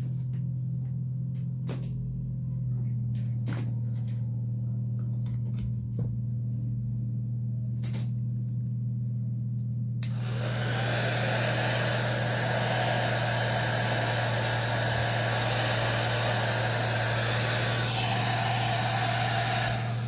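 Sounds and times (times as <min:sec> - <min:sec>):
low hum: 0:00.0 - 0:20.0
hair dryer blowing air: 0:10.0 - 0:20.0.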